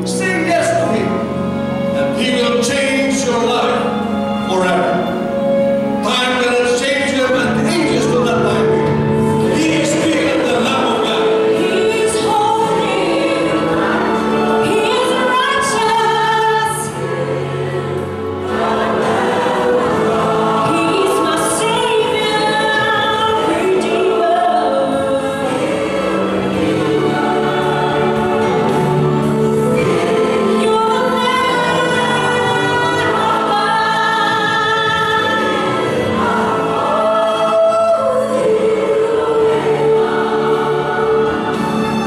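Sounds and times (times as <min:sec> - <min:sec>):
instrumental accompaniment: 0:00.0 - 0:42.0
mixed choir singing gospel: 0:00.0 - 0:42.0.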